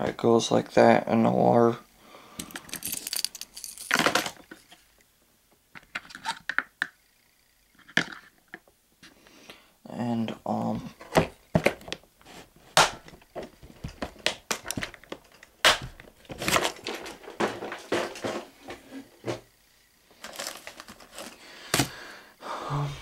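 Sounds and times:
plastic box clicks and knocks: 0:11.0 - 0:12.0, 0:12.8 - 0:19.4.

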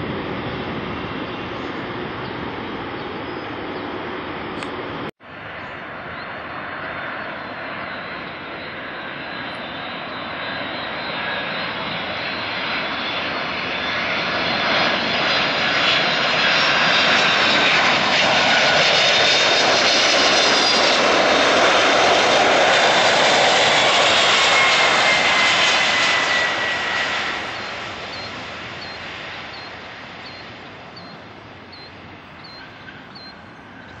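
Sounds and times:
jet airliner passing overhead: 0:00.0 - 0:34.0
falling whine: 0:24.5 - 0:34.0.

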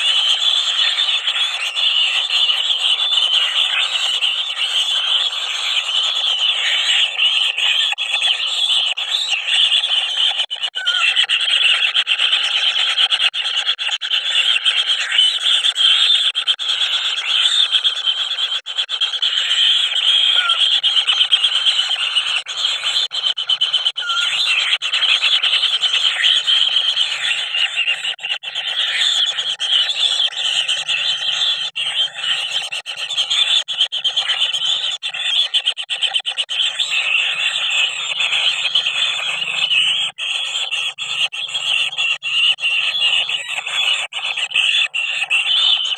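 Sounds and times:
bird chicks begging buzz: 0:20.3 - 0:20.6, 0:24.0 - 0:24.6.

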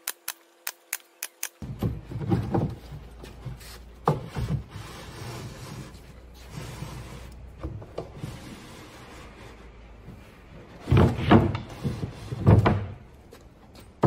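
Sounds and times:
wooden knocks and bumps: 0:01.6 - 0:04.7, 0:10.8 - 0:13.1.

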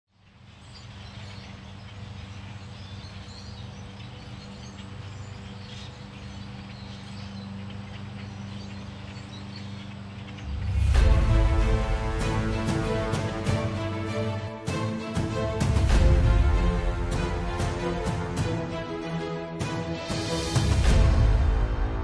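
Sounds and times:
steady low hum: 0:00.1 - 0:14.1
loud music: 0:10.6 - 0:22.0.

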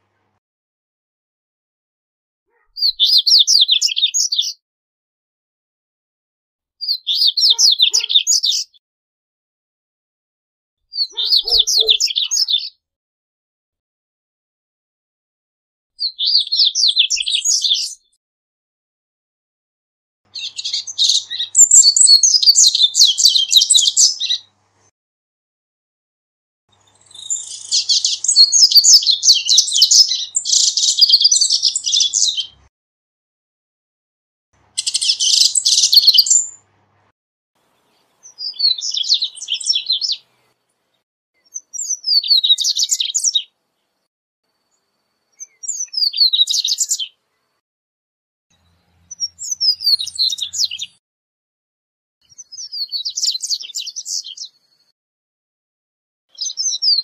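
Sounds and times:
bird twittering song: 0:02.5 - 0:04.6, 0:06.8 - 0:08.8, 0:10.9 - 0:12.8, 0:16.0 - 0:18.2, 0:20.3 - 0:24.5, 0:26.7 - 0:32.6, 0:34.8 - 0:36.6, 0:37.7 - 0:47.6, 0:48.6 - 0:51.0, 0:52.2 - 0:54.9, 0:56.3 - 0:57.0.

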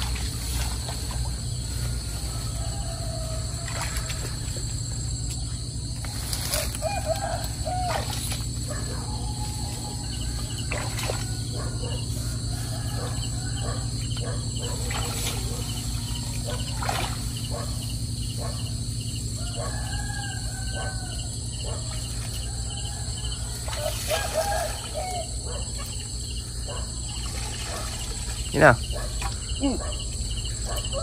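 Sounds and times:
constant low rumble: 0:00.0 - 0:31.0
insects chirping: 0:00.0 - 0:31.0
rooster crowing: 0:01.8 - 0:04.6, 0:06.5 - 0:14.8, 0:18.4 - 0:28.0, 0:29.8 - 0:31.0.

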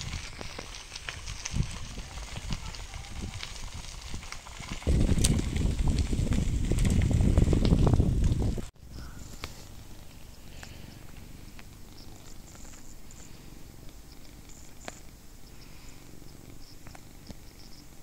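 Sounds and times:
cat purring: 0:09.2 - 0:18.0
faint clicks: 0:09.3 - 0:17.8.

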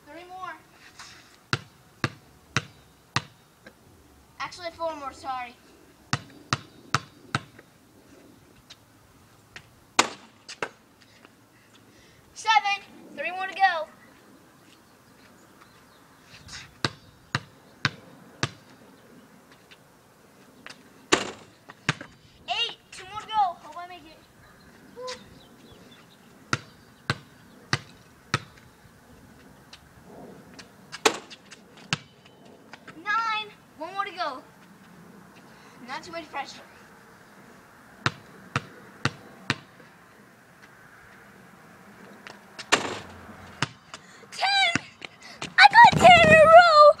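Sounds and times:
basketball bouncing on pavement: 0:01.5 - 0:03.8, 0:06.1 - 0:07.7, 0:09.6 - 0:10.8, 0:16.6 - 0:18.7, 0:20.6 - 0:23.8, 0:26.5 - 0:28.7, 0:30.5 - 0:33.0, 0:38.0 - 0:39.9, 0:42.2 - 0:46.7.

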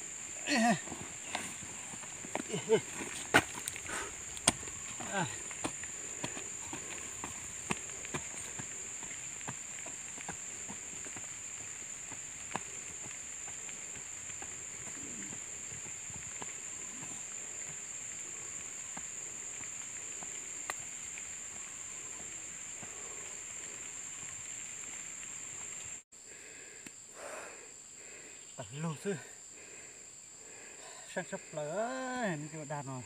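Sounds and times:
insects droning: 0:00.0 - 0:33.0.

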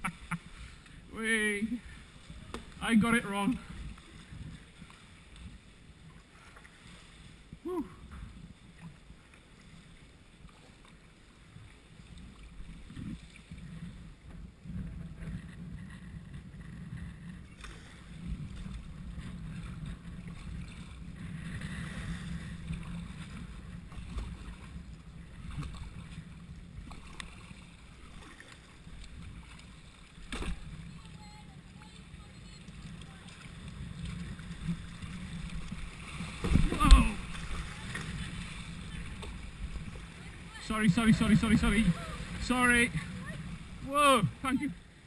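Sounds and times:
water sloshing around kayak: 0:00.0 - 0:45.0
low microphone rumble: 0:12.6 - 0:27.0.

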